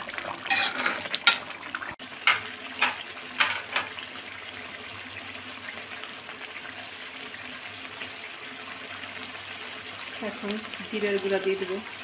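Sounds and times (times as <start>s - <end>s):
gravy bubbling in metal pot: 0.0s - 12.0s
spatula scraping pot: 0.2s - 1.5s.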